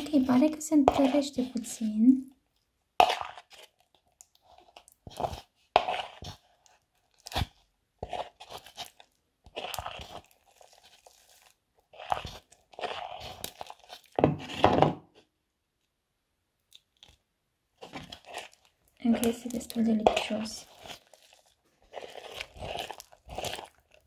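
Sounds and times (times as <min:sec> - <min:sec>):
metal spoon in plastic bowl: 0:00.0 - 0:02.4, 0:17.8 - 0:24.0
sticky crackling glue stirred: 0:00.0 - 0:14.7, 0:16.6 - 0:24.0.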